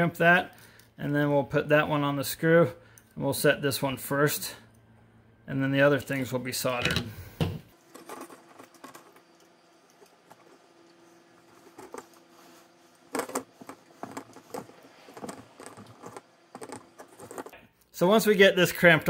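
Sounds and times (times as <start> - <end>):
quiet tool handling: 6.6 - 17.7.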